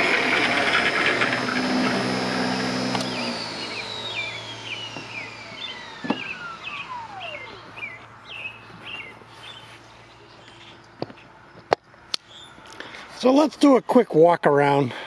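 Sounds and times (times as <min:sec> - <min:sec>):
electric motor whine spinning down: 0:00.0 - 0:09.8
bird chirping: 0:03.0 - 0:13.0
single thump: 0:06.0 - 0:06.3.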